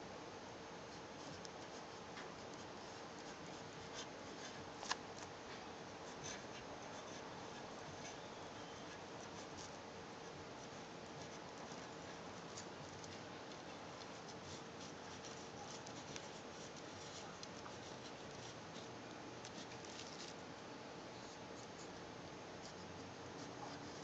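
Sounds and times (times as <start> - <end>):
steady hiss: 0.0 - 24.0
pen nib scratching paper: 0.9 - 20.4.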